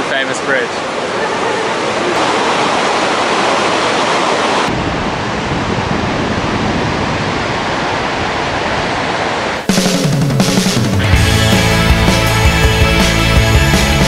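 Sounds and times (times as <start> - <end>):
fast river rushing: 0.0 - 9.7.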